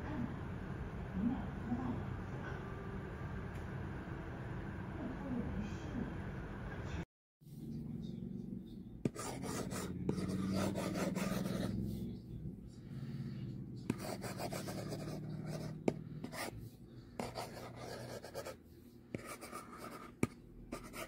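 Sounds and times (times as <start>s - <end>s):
stylus scratching on glass screen: 9.1s - 12.1s, 13.9s - 16.6s, 17.2s - 18.6s, 19.2s - 21.0s.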